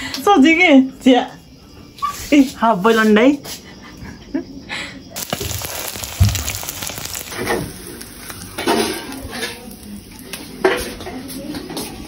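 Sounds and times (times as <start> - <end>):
egg sizzling in oil: 5.2 - 10.6.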